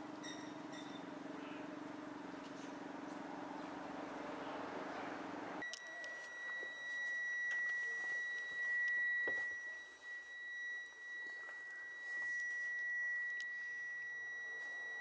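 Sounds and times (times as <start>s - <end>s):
high-pitched electronic beep tone: 0.2s - 1.1s, 5.6s - 15.0s.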